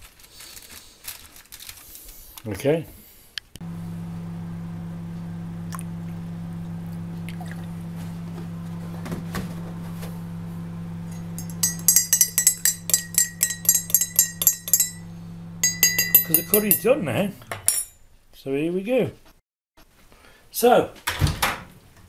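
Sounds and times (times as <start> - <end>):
microwave oven hum: 3.6 - 16.9
teaspoon clinking in mug: 11.1 - 16.9.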